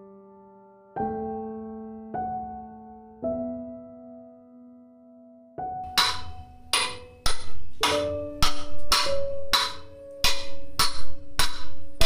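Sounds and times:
hammer striking steel sleeve: 5.8 - 12.0.

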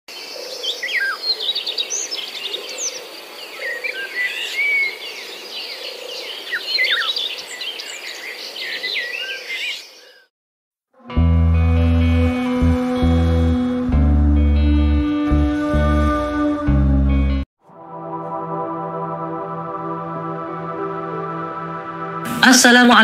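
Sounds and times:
birds chirping and whistling: 6.2 - 10.2.

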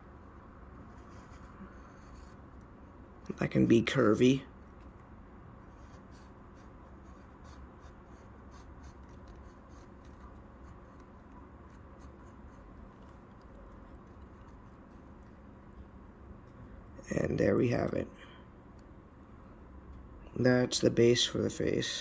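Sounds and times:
pencil scratching on paper: 0.8 - 2.4, 5.7 - 15.4.

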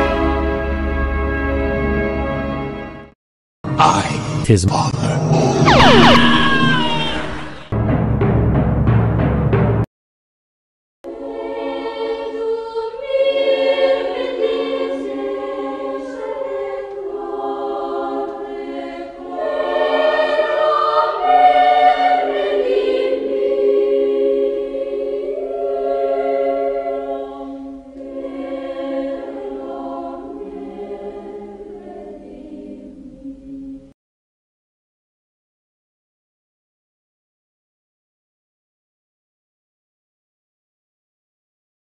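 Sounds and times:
choir singing held chords: 5.4 - 7.7, 11.1 - 34.0.

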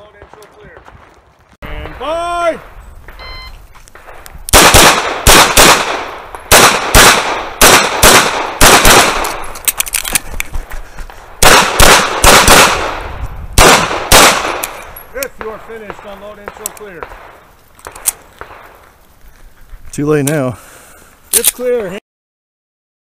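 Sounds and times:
pistol shots: 4.0 - 9.4, 11.4 - 18.7.

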